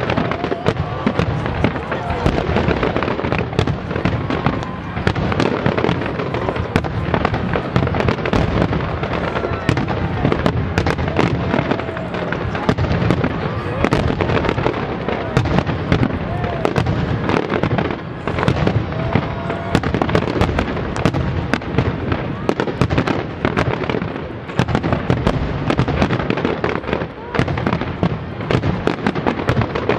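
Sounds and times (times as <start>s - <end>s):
fireworks bursting: 0.0s - 29.9s
fireworks crackle: 0.0s - 29.9s.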